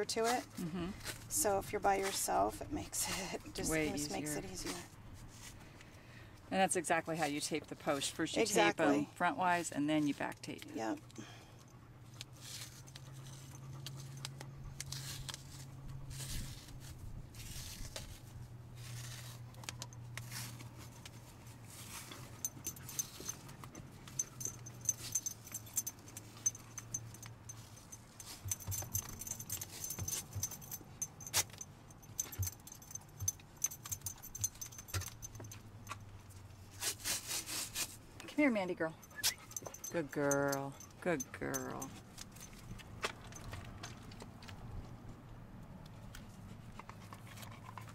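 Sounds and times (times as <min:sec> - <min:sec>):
paper tape rustling and crinkling: 0:12.1 - 0:22.4, 0:36.5 - 0:38.0.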